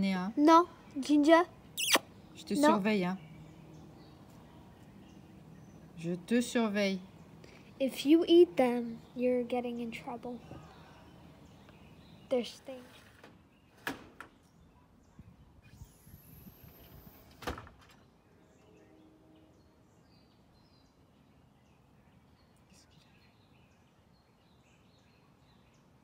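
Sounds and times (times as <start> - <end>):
faint bird chirps: 0.5 - 6.0, 18.1 - 26.0.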